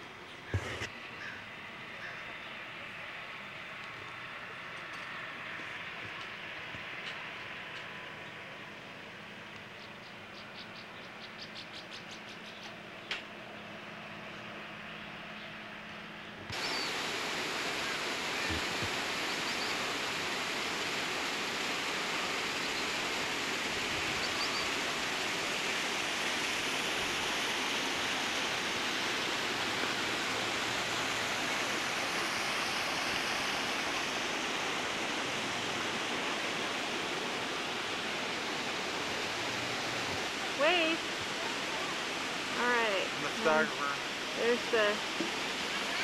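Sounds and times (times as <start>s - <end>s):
rushing water: 16.5s - 46.0s.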